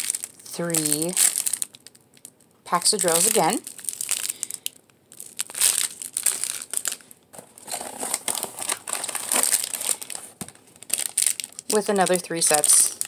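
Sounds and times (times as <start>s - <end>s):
plastic wrapping crinkling: 0.0s - 13.0s.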